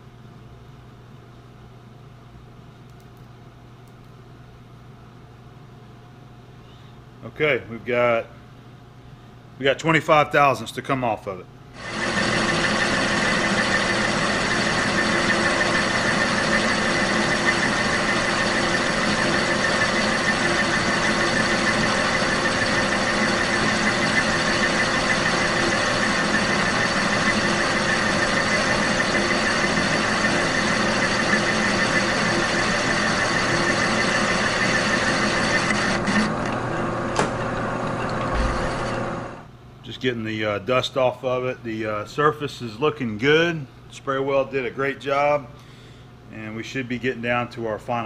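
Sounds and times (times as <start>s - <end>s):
lathe click: 11.8s - 39.1s
metal cutting noise: 11.8s - 39.3s
lathe humming: 11.8s - 39.5s.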